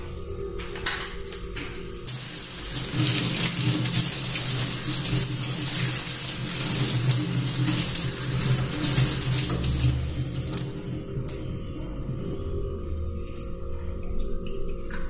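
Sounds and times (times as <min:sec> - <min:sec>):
tap water splashing into sink: 0:02.1 - 0:11.4.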